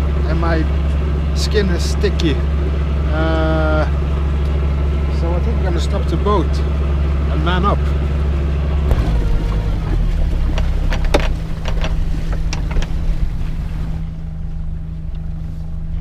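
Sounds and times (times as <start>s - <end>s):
boat diesel engine running: 0.0s - 16.0s
knocks and clatter on deck: 10.5s - 13.0s.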